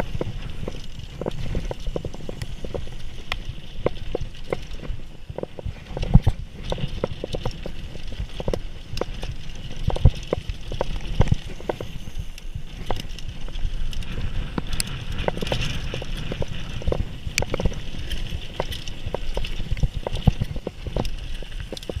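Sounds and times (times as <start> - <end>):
bike clattering over bumps: 0.0 - 22.0
bike tyres rumbling on dirt: 0.0 - 22.0.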